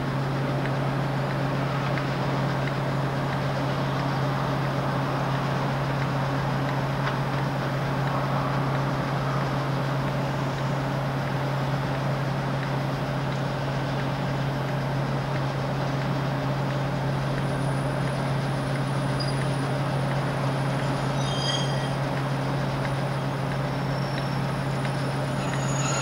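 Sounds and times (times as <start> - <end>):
diesel locomotive engine drone: 0.0 - 26.0
brief high squeals: 20.9 - 22.0, 25.3 - 26.0.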